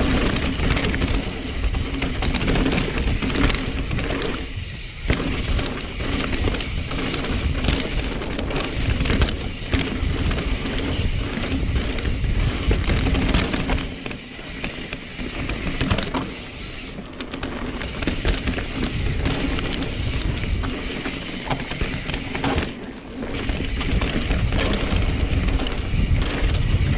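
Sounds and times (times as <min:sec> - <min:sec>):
wind rumble on microphone: 0:00.0 - 0:13.9, 0:18.0 - 0:20.8, 0:23.4 - 0:26.9
bike tyres on loose dirt: 0:00.0 - 0:26.9.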